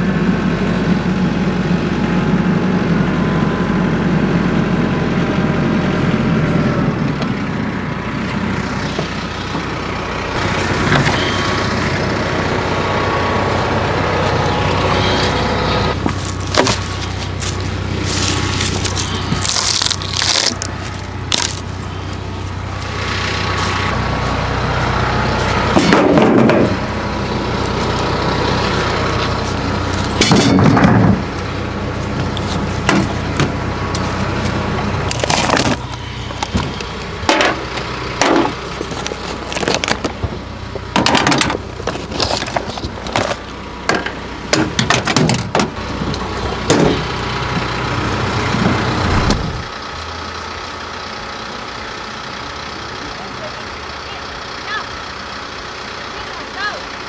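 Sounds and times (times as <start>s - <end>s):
engine humming: 0.0s - 57.0s
metal clanks and knocks: 25.7s - 26.8s, 30.2s - 31.3s, 35.1s - 47.1s.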